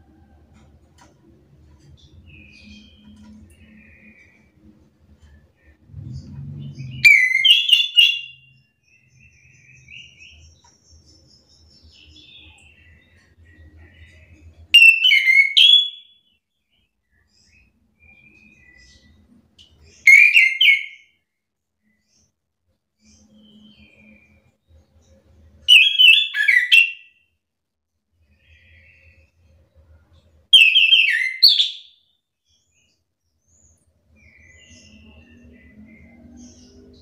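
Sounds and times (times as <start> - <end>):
faint low rumble: 3.4 - 7.0
thrush whistled song: 6.8 - 9.1, 20.0 - 21.1, 25.6 - 27.2, 30.5 - 32.0.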